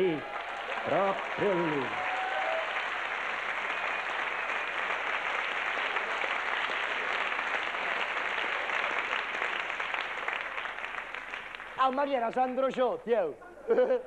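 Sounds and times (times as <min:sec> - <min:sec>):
audience applauding: 0:00.0 - 0:12.3.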